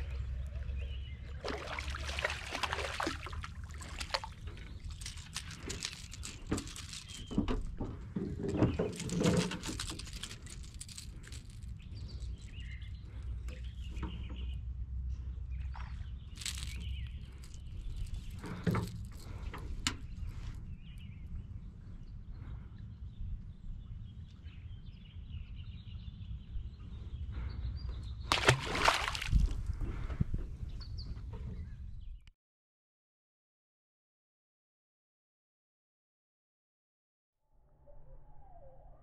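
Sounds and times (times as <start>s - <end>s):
clicks and taps handling fish: 3.0s - 12.4s, 16.4s - 20.3s
faint bird chirps: 37.6s - 39.0s.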